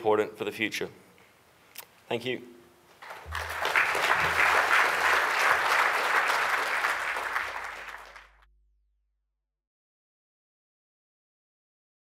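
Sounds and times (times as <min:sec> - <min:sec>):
audience applause: 0:03.0 - 0:08.4.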